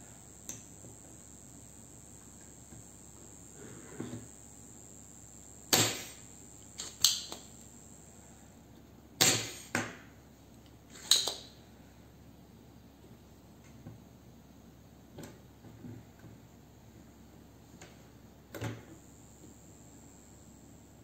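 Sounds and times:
desoldering pump snapping: 0:05.7 - 0:07.7.

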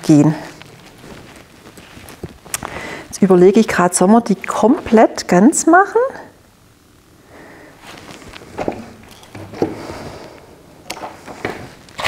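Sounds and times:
dried materials rustling: 0:00.0 - 0:05.2, 0:07.8 - 0:10.4.

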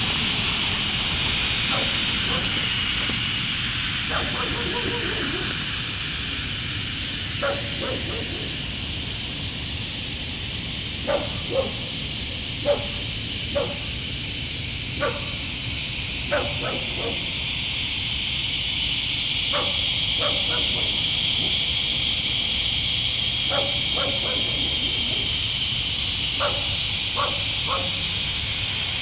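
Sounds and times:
insect chorus: 0:00.0 - 0:29.0
dog barking: 0:01.6 - 0:02.7, 0:04.1 - 0:05.5, 0:07.4 - 0:08.6, 0:11.0 - 0:12.0, 0:12.6 - 0:13.9, 0:15.0 - 0:15.4, 0:16.3 - 0:17.3, 0:19.5 - 0:21.6, 0:23.4 - 0:25.3, 0:26.4 - 0:28.0.

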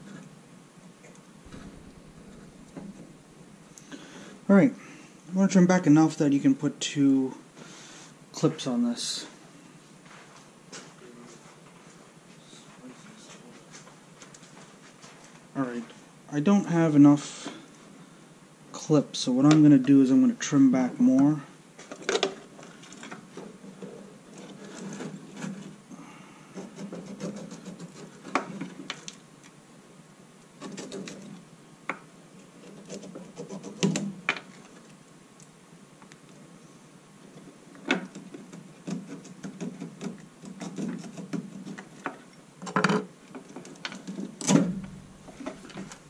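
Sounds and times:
rustling and scraping: 0:01.0 - 0:04.8, 0:09.8 - 0:16.1, 0:21.8 - 0:25.8, 0:26.5 - 0:29.2, 0:30.6 - 0:31.5, 0:32.4 - 0:35.0, 0:37.2 - 0:46.0.

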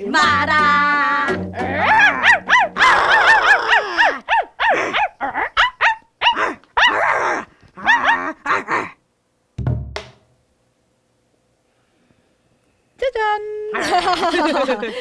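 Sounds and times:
women imitating dog barks: 0:01.6 - 0:09.0.

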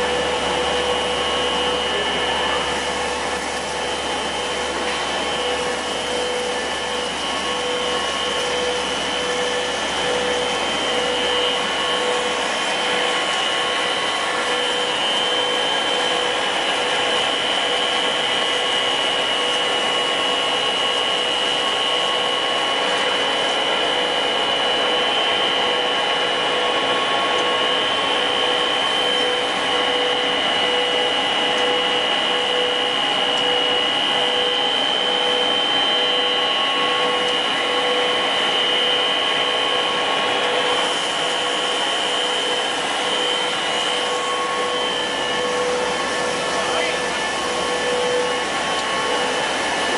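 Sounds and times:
high steady whine: 0:00.0 - 0:49.9
loud machine drone: 0:00.0 - 0:49.9.

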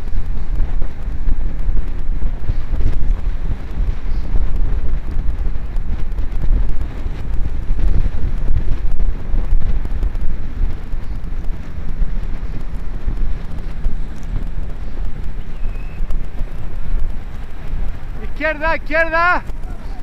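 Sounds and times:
wind buffeting microphone: 0:00.0 - 0:20.0.

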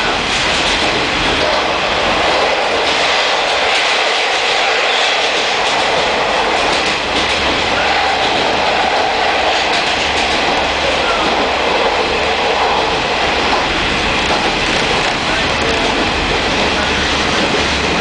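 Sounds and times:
railcar wheels rumbling on rail: 0:00.0 - 0:18.0.

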